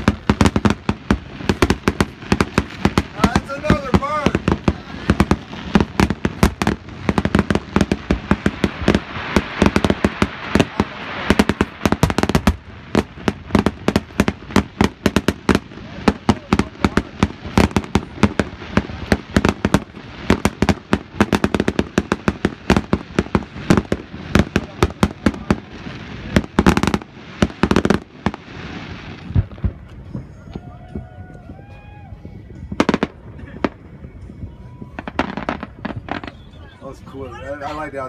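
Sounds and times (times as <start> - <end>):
fireworks hiss: 0.0 - 30.0
fireworks bangs: 0.0 - 38.0.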